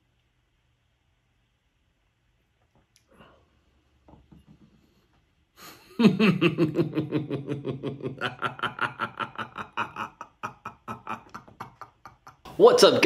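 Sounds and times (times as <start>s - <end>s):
man laughing heartily: 5.6s - 12.6s.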